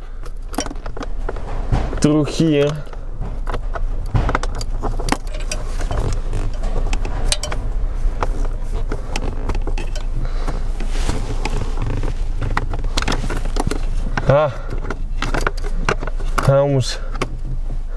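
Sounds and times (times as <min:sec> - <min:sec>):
steady low hum: 0:00.0 - 0:17.9.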